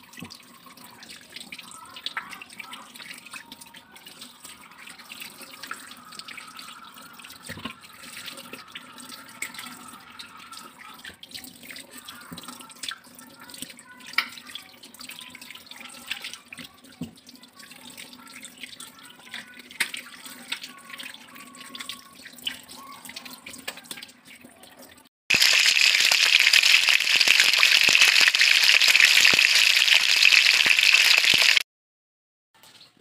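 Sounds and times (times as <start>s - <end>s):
fish frying in oil sizzle: 25.3s - 31.6s
wet squelches and splashes: 25.3s - 31.6s.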